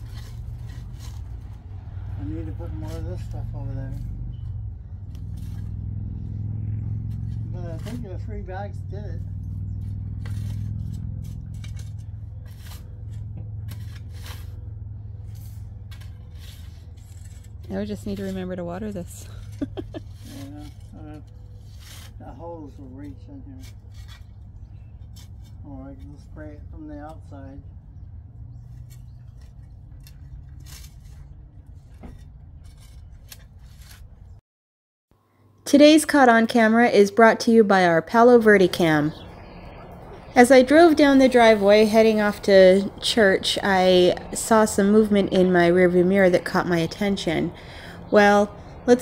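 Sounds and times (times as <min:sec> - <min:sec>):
shovel scraping soil: 0:00.0 - 0:01.6, 0:02.2 - 0:04.1, 0:07.1 - 0:08.2, 0:09.8 - 0:26.2, 0:28.9 - 0:34.4
steady low rumble: 0:00.0 - 0:34.4, 0:36.5 - 0:49.0
steady low hum: 0:37.8 - 0:49.0.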